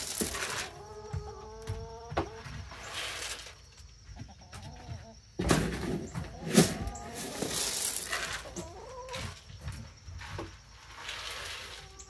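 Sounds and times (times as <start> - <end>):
scoop rustling in dry feed: 0.0 - 0.8, 7.2 - 8.6
chickens clucking: 0.0 - 12.0.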